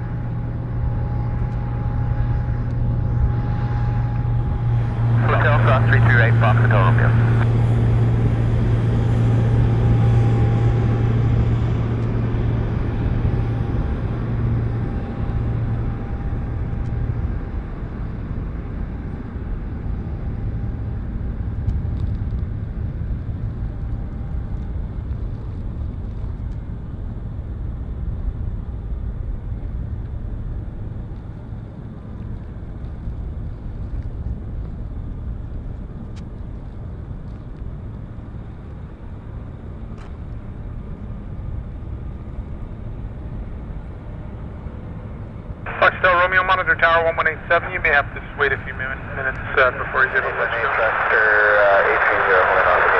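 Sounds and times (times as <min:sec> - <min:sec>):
jet engines rumbling: 0:00.0 - 0:19.8, 0:42.1 - 0:52.9
faint jet engine whine: 0:00.0 - 0:52.9.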